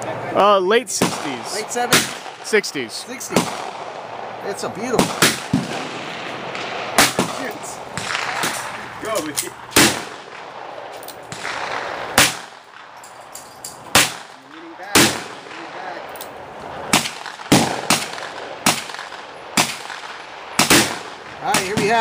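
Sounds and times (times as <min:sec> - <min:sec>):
revolver shots: 0:04.8 - 0:09.0.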